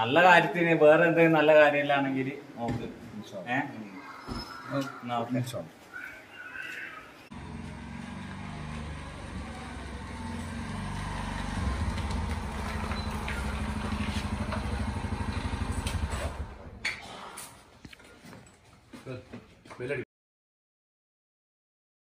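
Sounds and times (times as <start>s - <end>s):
small motorcycle engine running: 7.3s - 16.7s.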